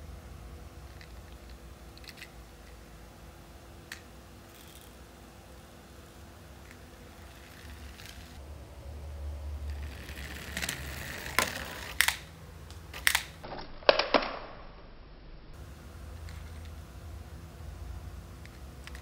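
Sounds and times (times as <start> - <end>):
plastic toy clicks and knocks: 13.0 - 14.4.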